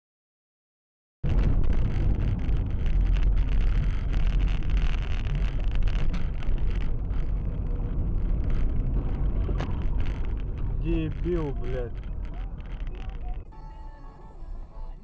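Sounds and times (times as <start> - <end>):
car road and engine rumble: 1.2 - 15.0.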